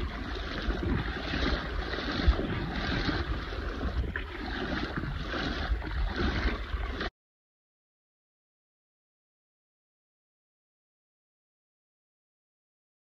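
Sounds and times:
wind buffeting microphone: 0.0 - 7.0.

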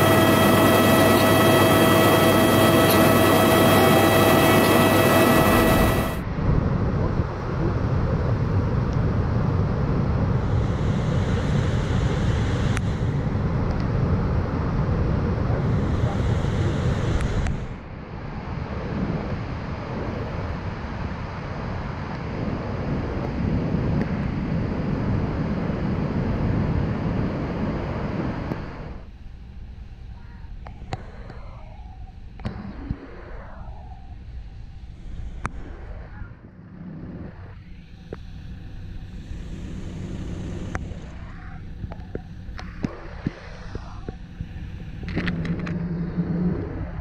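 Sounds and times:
wind buffeting microphone: 0.0 - 29.1.

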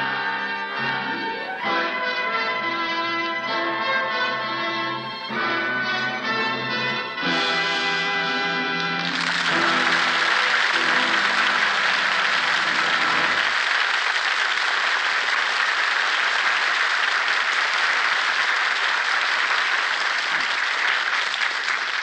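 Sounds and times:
audience applauding: 8.4 - 22.0.

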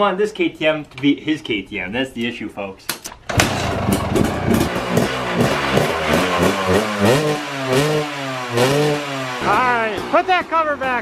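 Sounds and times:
dirt bike engine revving: 3.3 - 11.0.

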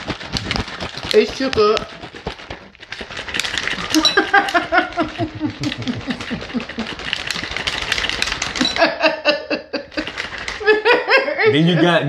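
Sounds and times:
shaker bottle rattling: 0.0 - 11.1.

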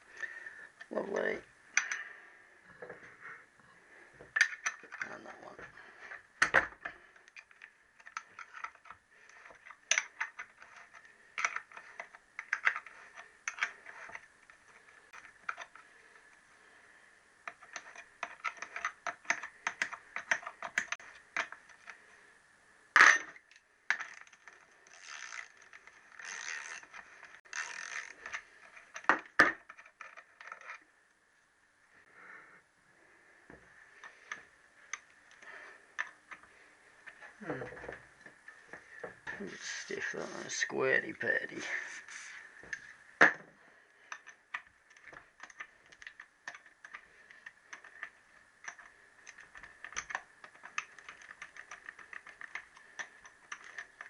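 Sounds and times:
tool scraping: 41.4 - 42.9.

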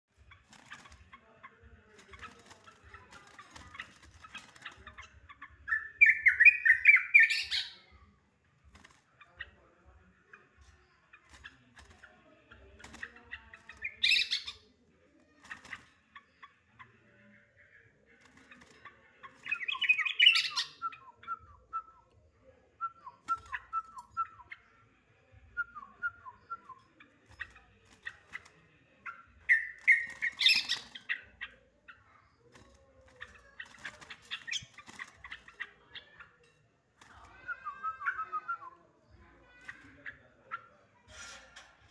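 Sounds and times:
bird harsh chatter: 0.2 - 7.8, 10.5 - 14.7, 18.2 - 21.4, 26.3 - 38.6.

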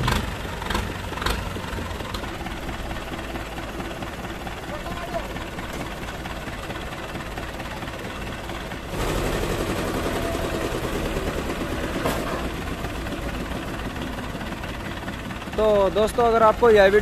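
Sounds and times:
engine revving under load: 0.0 - 1.8, 8.9 - 12.6
tractor diesel engines running: 0.0 - 17.0.

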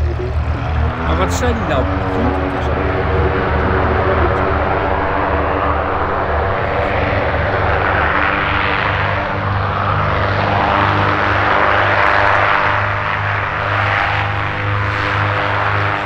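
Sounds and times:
propeller aircraft engines droning: 0.0 - 16.0.

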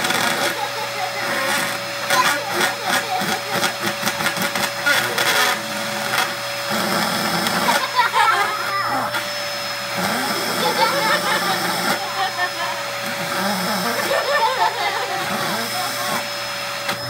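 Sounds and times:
vacuum cleaner whine: 0.0 - 17.0.

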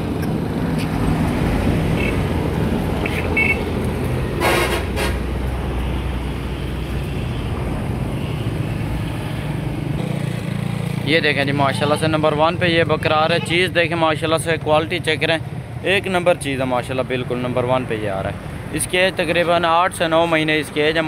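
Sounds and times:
vehicle traffic rumble: 0.0 - 21.0.

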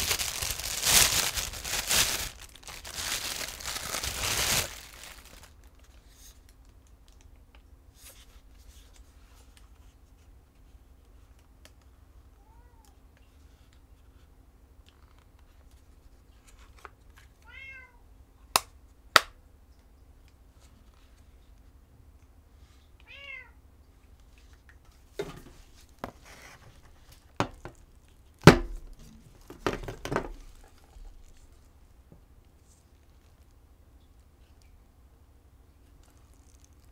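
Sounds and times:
cat meowing: 12.4 - 13.0, 17.4 - 18.0, 23.0 - 23.6.

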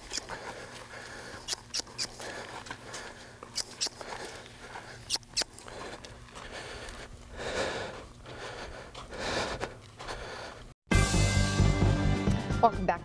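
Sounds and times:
sharp clicks: 0.0 - 0.4, 1.4 - 2.2, 3.6 - 4.0, 5.1 - 5.6.

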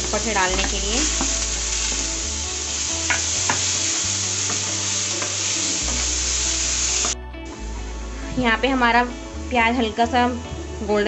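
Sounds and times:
onions sizzling in hot oil: 0.0 - 7.2.

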